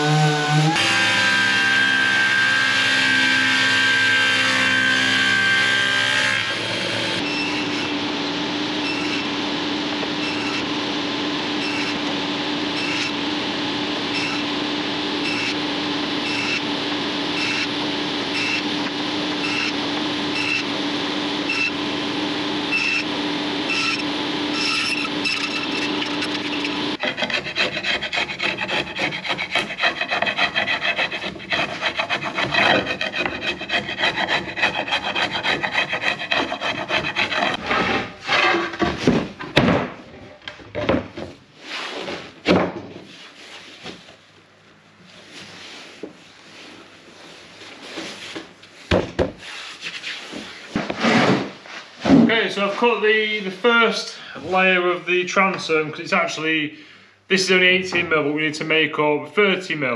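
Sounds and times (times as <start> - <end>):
saw blade rasping through plywood: 0.0 - 8.0, 8.8 - 9.3, 23.7 - 38.7
panel saw humming: 0.0 - 38.1.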